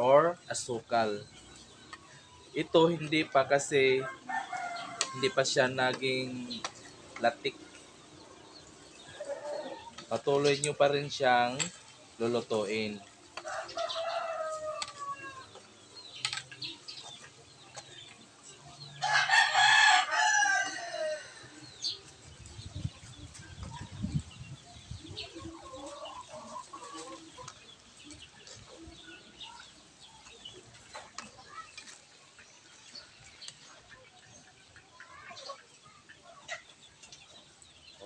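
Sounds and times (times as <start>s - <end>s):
rooster crowing: 19.0s - 21.5s.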